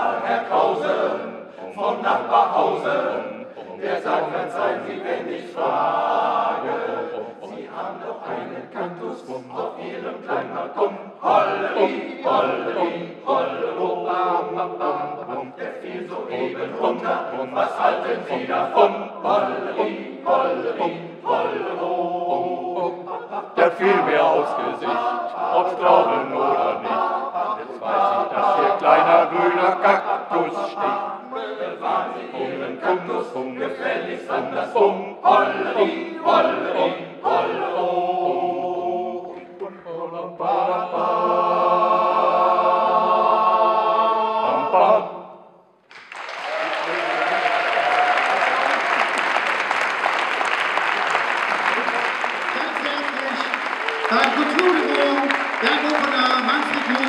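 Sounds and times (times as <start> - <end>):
male choir singing a cappella: 0.0 - 45.6, 54.1 - 57.0.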